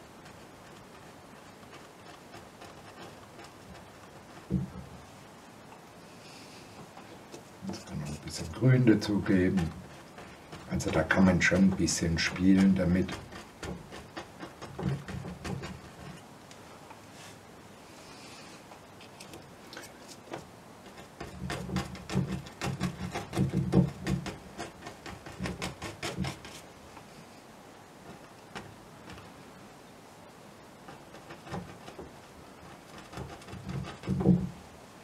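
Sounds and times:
paintbrush tapping on canvas: 4.3 - 4.9.

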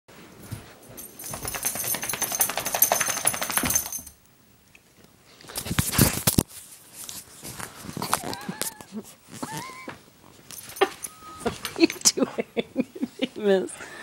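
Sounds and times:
dog tags jingling: 0.9 - 4.2
bumps and rubbing on microphone: 5.5 - 11.7.

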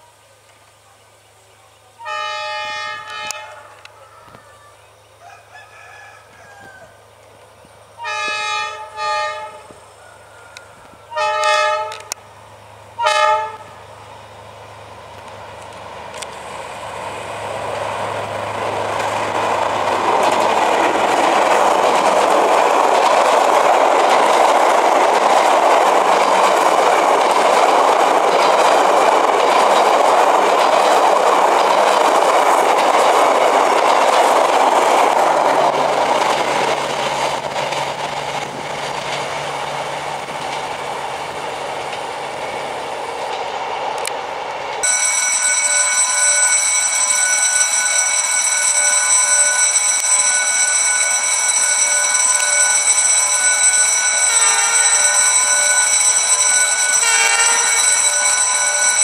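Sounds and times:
locomotive engine hum: 6.2 - 59.0
train wheels rushing on rails: 6.2 - 59.0
high-pitched tone: 44.8 - 59.0.

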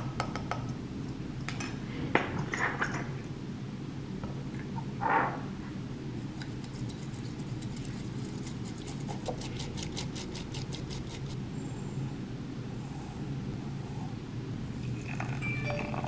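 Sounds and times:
bamboo whisk brushing in a bowl: 6.4 - 11.4.

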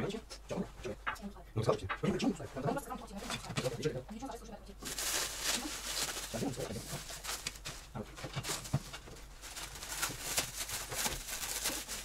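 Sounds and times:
plastic wrapping crinkling: 4.8 - 12.0.

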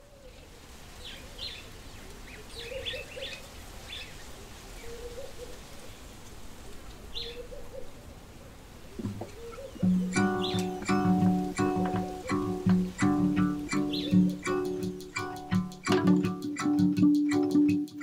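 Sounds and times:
birds chirping: 8.9 - 18.0
low warbling bird call: 9.0 - 17.8.

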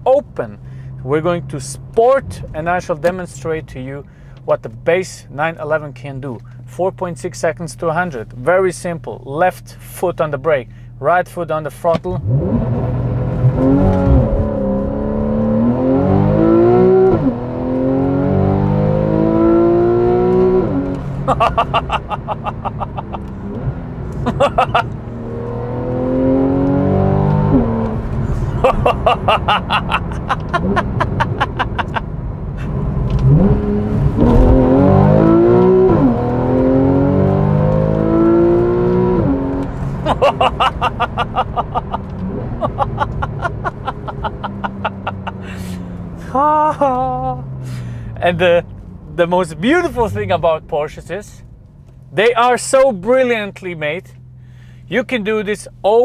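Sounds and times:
car engine accelerating hard: 12.2 - 52.9
rapid engine pulsing: 20.7 - 25.2, 39.7 - 46.4.

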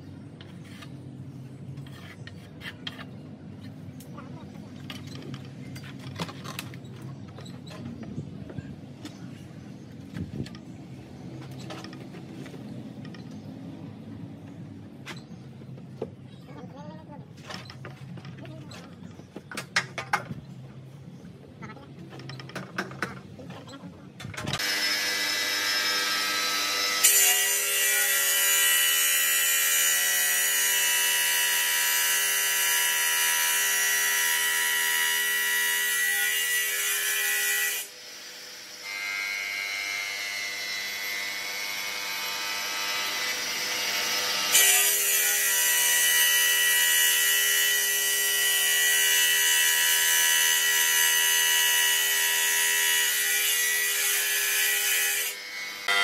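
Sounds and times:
stone saw cutting granite: 24.6 - 56.0.

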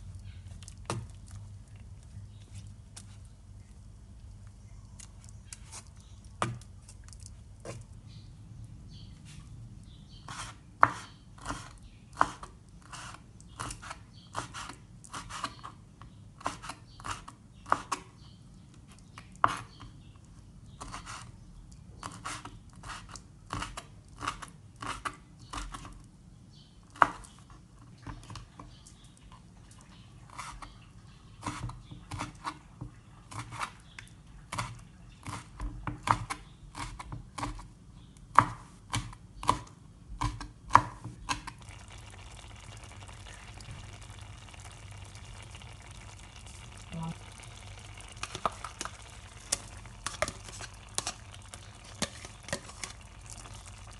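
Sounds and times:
knife chopping on wooden board: 10.3 - 12.5, 38.3 - 41.5
pan simmering hiss: 41.5 - 53.9.

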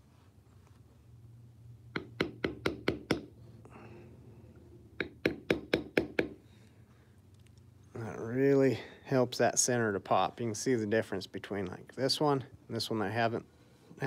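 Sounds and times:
mallet tapping leather stamping tool: 1.9 - 3.3, 5.0 - 6.4.

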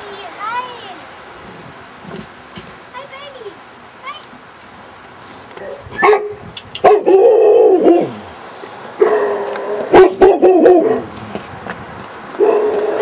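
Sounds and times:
dog barking: 5.6 - 8.2, 9.0 - 11.1, 12.4 - 13.0.

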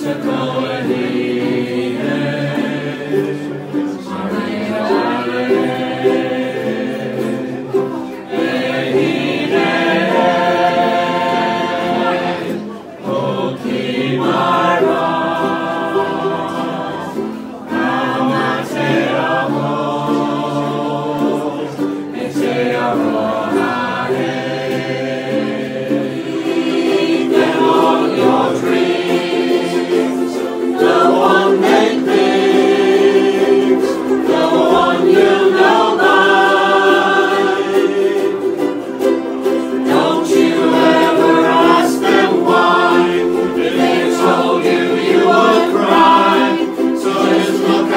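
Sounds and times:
mixed voices singing in chorus: 0.0 - 47.9
strummed ukuleles: 0.0 - 47.9.

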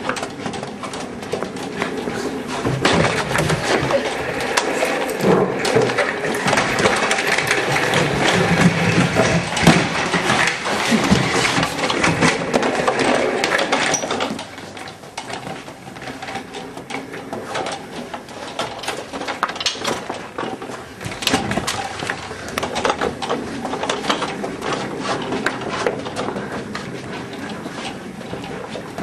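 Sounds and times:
chair casters rolling on hard floor: 0.0 - 29.0.

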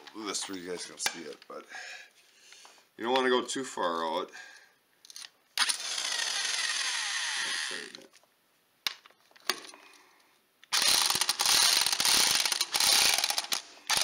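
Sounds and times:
power tool motor winding down: 5.6 - 8.0, 10.7 - 14.0.

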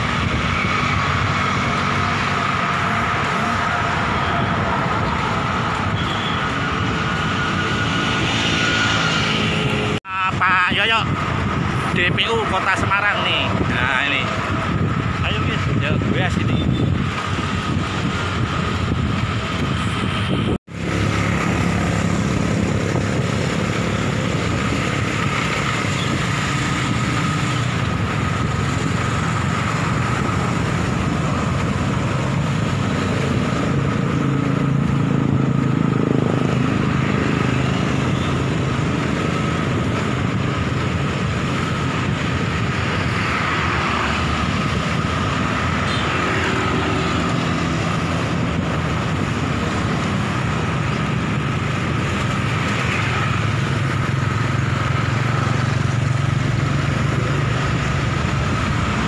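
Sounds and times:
motorcycles passing: 0.0 - 59.0
wind and road noise: 0.0 - 59.0.

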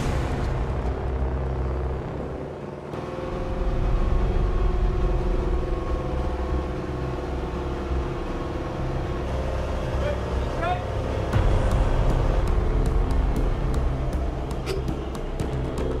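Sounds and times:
lift truck engine rumbling: 0.0 - 16.0.

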